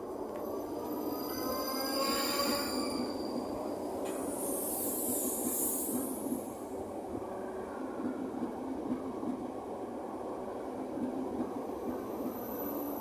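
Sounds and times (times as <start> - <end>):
train wheel squeal: 0.4 - 6.6, 12.1 - 13.0.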